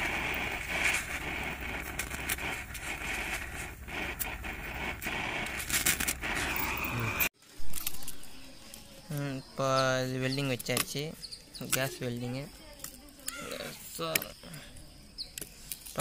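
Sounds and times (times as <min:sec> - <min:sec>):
welding arc crackling: 0:00.0 - 0:08.0.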